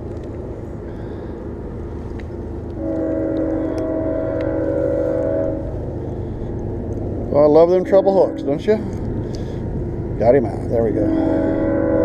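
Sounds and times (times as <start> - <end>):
steady low rumble: 0.0 - 12.0
distant train horn chord: 2.8 - 6.5, 7.4 - 8.8, 10.7 - 12.0.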